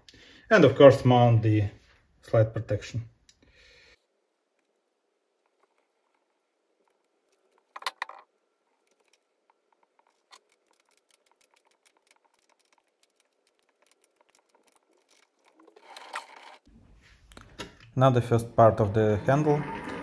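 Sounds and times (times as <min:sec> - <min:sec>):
small metal parts clicking: 0:05.5 - 0:16.7.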